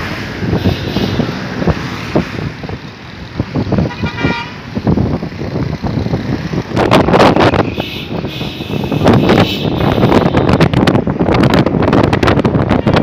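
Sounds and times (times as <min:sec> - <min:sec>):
moving vehicle road noise: 0:00.0 - 0:13.0
wind buffeting microphone: 0:00.0 - 0:13.0
vehicle horn toot: 0:03.8 - 0:04.6, 0:07.7 - 0:10.6.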